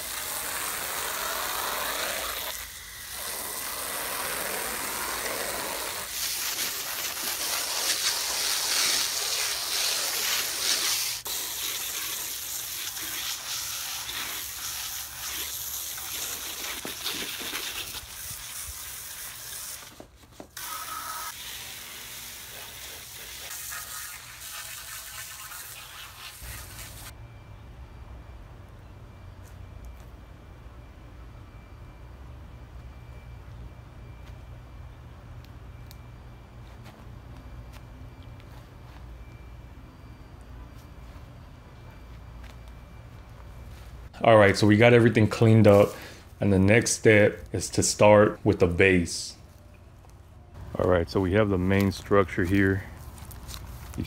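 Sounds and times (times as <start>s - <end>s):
hose spray splattering on wood: 0.0s - 20.0s, 21.3s - 27.1s.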